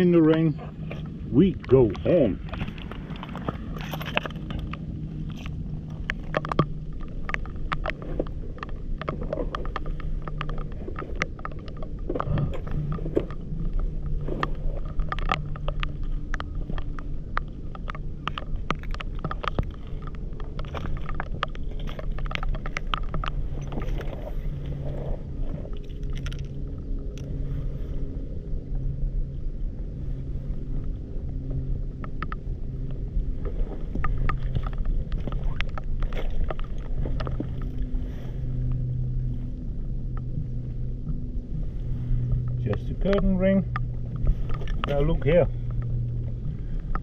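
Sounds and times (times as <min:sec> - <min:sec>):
low engine hum: 0:00.0 - 0:47.0
stones clicking and knocking: 0:02.5 - 0:24.3, 0:25.6 - 0:26.6.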